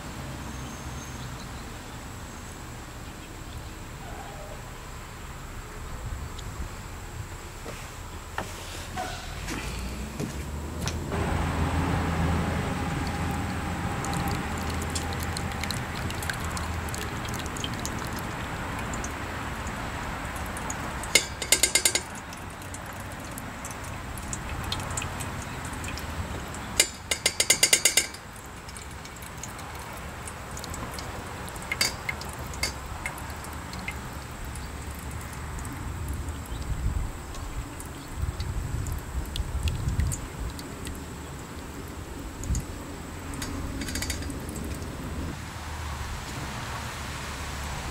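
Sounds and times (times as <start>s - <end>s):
water pouring through strainer: 11.6s - 26.9s, 28.1s - 36.8s
metal clinks: 21.1s - 22.3s, 26.8s - 28.9s, 43.4s - 44.4s.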